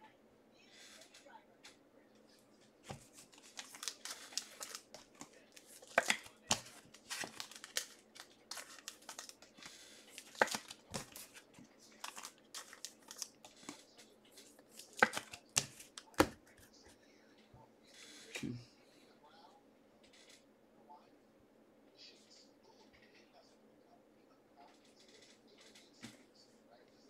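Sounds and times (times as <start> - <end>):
card packs tearing open: 2.9 - 16.4
foil wrappers crinkling: 2.9 - 16.4.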